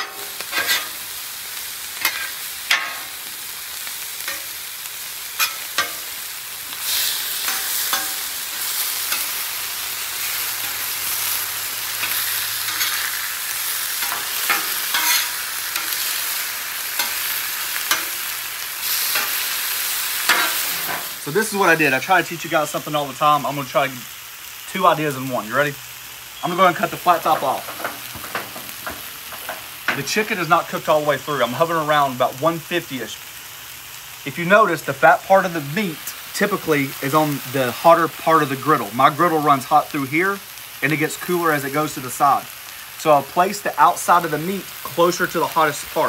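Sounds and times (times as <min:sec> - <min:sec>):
metal spatulas clacking and scraping: 0:00.0 - 0:00.9, 0:05.4 - 0:06.0, 0:07.4 - 0:08.2, 0:12.0 - 0:13.1, 0:14.0 - 0:16.0, 0:20.3 - 0:21.0
food sizzling on griddle: 0:00.0 - 0:46.0.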